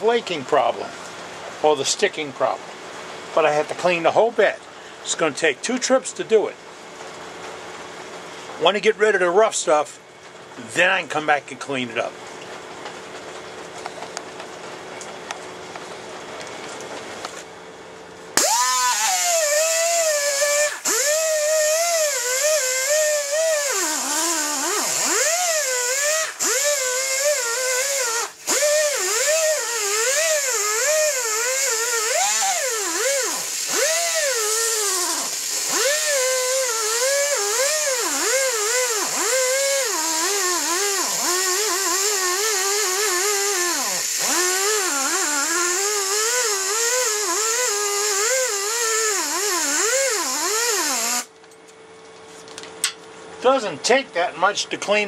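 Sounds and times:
pneumatic sander whining: 18.4s - 51.3s.

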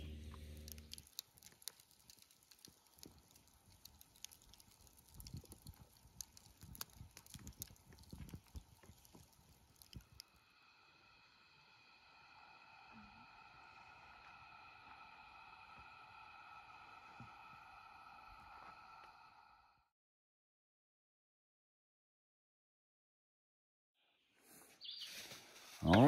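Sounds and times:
campfire crackling: 0.0s - 19.5s.

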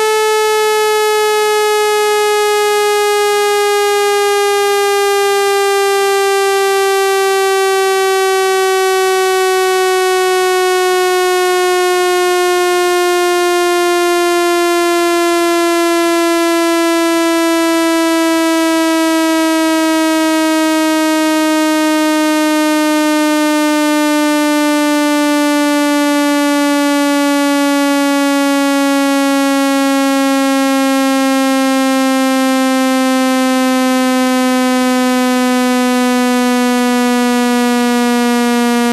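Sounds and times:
buzzy electronic tone gliding down: 30.6s - 38.9s.

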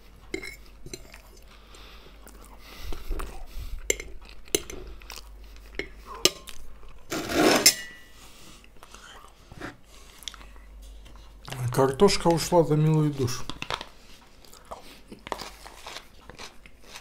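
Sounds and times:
fork scraping a ceramic plate: 7.1s - 7.9s.

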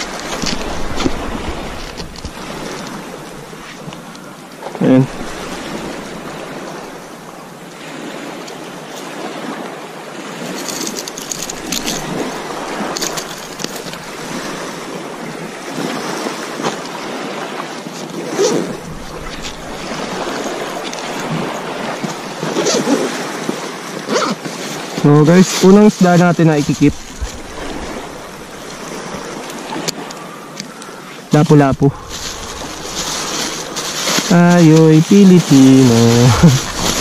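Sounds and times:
waves washing on pebble shore: 0.0s - 4.1s, 4.8s - 30.1s, 31.3s - 37.0s
wind on microphone: 10.4s - 23.6s, 26.6s - 30.0s, 31.7s - 37.0s
gear clicking on gravel: 10.6s - 14.6s, 31.9s - 37.0s.

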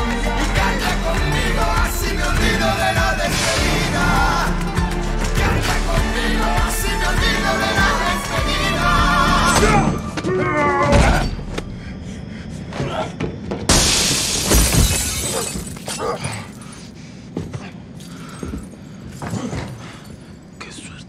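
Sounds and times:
song with singing voice: 0.0s - 10.2s
crash with shattering: 13.7s - 16.6s.

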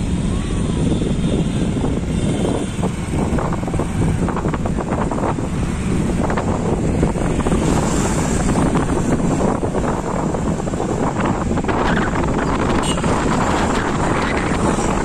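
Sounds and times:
vehicle noise: 0.0s - 15.0s
wind buffeting microphone: 0.0s - 15.0s.

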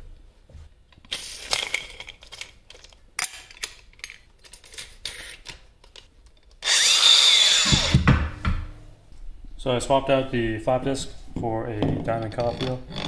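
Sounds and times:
metal clinks and scrapes: 1.1s - 5.4s.

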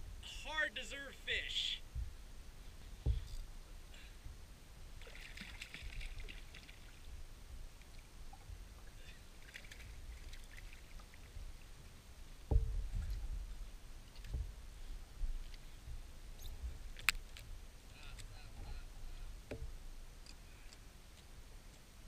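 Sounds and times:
low thump: 3.0s - 3.3s, 12.5s - 13.5s
water splashing: 5.0s - 7.2s, 7.8s - 11.8s.

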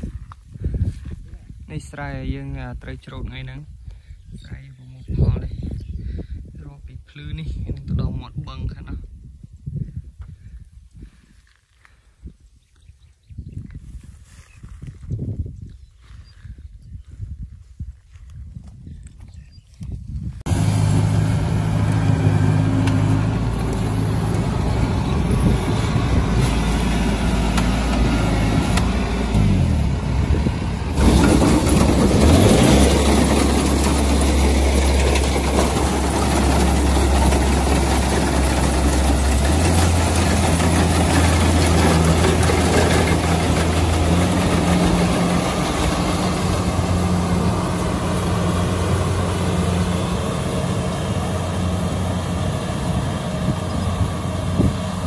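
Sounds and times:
combine harvester engine running: 20.5s - 55.0s.

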